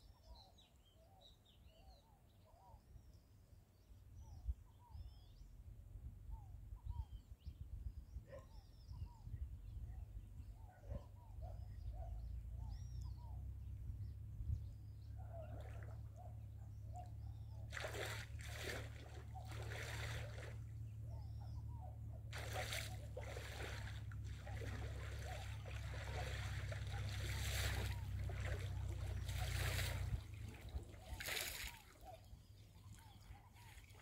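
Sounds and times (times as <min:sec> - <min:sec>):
wind rumble on microphone: 0:04.2 - 0:32.2
faint bird calls: 0:14.5 - 0:34.0
small waves lapping: 0:15.4 - 0:16.2, 0:17.0 - 0:21.1, 0:22.2 - 0:34.0.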